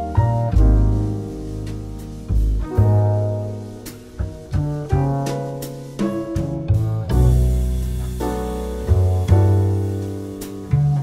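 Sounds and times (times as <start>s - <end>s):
double bass line: 0.0s - 11.0s
piano chords: 0.0s - 11.0s.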